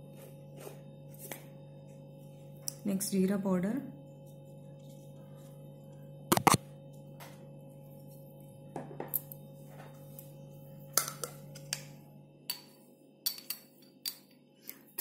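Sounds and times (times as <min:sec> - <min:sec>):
spoon clinking against bowl: 0:12.5 - 0:14.3.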